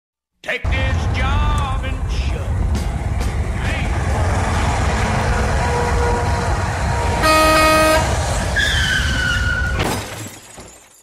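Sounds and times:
truck road and engine rumble: 0:00.7 - 0:10.6
vehicle horn: 0:04.4 - 0:08.3.

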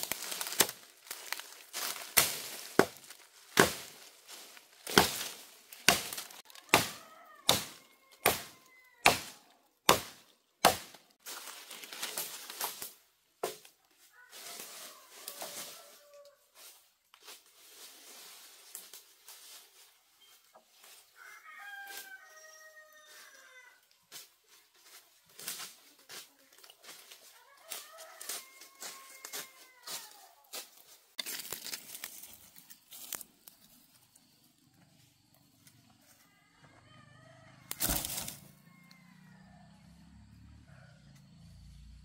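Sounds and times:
rooster crowing: 0:06.4 - 0:09.1, 0:14.1 - 0:16.4, 0:21.2 - 0:23.8, 0:27.4 - 0:30.6, 0:36.3 - 0:41.6.

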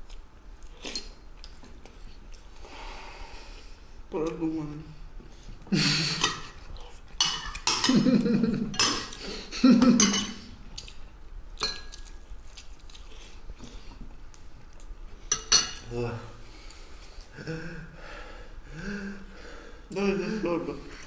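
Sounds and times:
spoons clinking on ceramic bowls: 0:07.2 - 0:08.0, 0:08.7 - 0:09.2, 0:09.8 - 0:10.4, 0:15.3 - 0:15.9.

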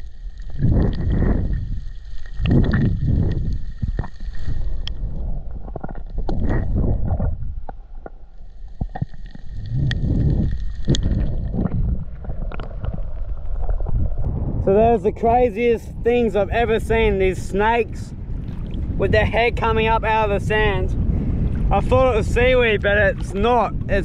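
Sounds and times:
sharp underwater clicks and crackles: 0:00.0 - 0:14.3
muffled underwater rumble: 0:00.0 - 0:24.0.

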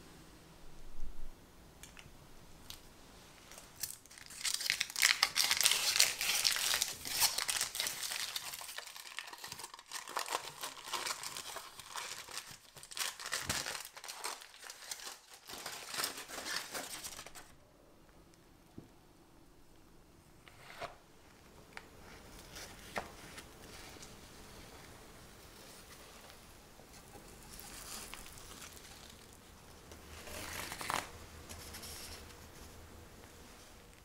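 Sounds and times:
aluminium foil crinkling: 0:03.4 - 0:17.6, 0:25.6 - 0:32.3.

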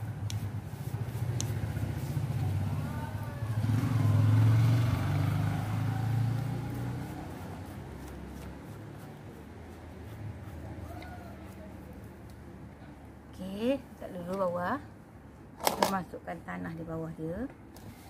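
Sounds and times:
vehicle engine passing: 0:00.0 - 0:12.2.

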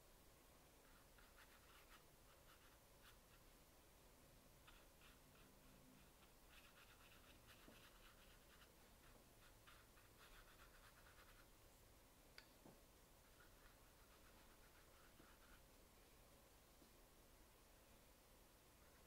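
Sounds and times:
brush scratching on paper: 0:00.8 - 0:03.5, 0:04.6 - 0:11.5, 0:13.2 - 0:15.7.

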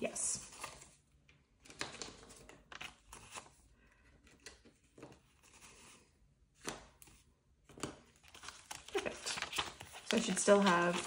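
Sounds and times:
paper banknotes rustling: 0:04.3 - 0:11.0.

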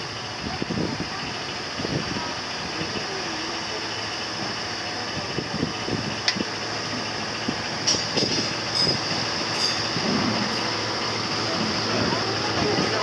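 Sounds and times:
machinery drone: 0:00.0 - 0:13.0
high squeaks: 0:08.0 - 0:10.8.

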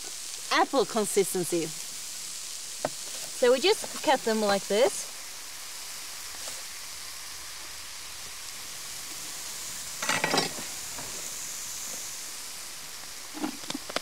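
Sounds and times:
mushrooms sizzling in a frying pan: 0:00.0 - 0:14.0
pan clatter: 0:10.0 - 0:11.2.

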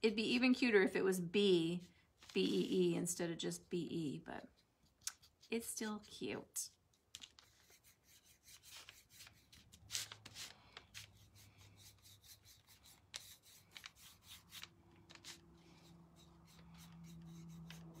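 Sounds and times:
paintbrush strokes on wood: 0:15.2 - 0:18.0.

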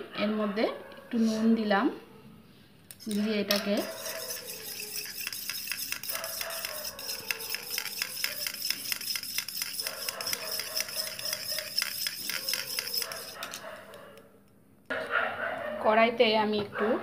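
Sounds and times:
spoon clinking against steel bowl: 0:03.0 - 0:13.6.

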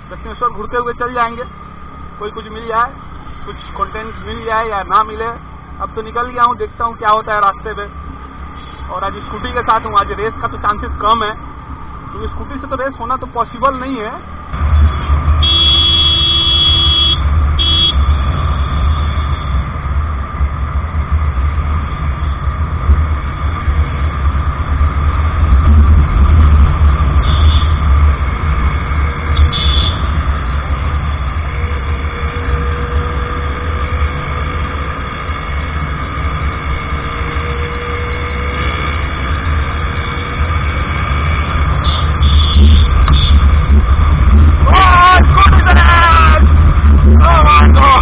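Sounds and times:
scooter engine and road noise: 0:00.0 - 0:48.0
horn beeps: 0:15.4 - 0:18.0, 0:29.4 - 0:30.1, 0:41.8 - 0:43.5.

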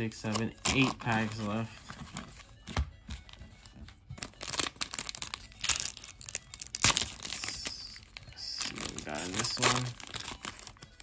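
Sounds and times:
foil wrapper crinkling: 0:04.2 - 0:11.0.

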